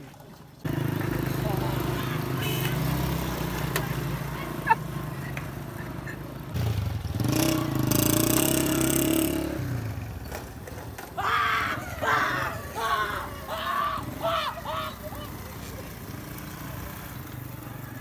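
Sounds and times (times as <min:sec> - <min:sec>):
motorcycle riding past: 0:00.6 - 0:10.7, 0:11.6 - 0:18.0
person shouting: 0:11.2 - 0:15.3.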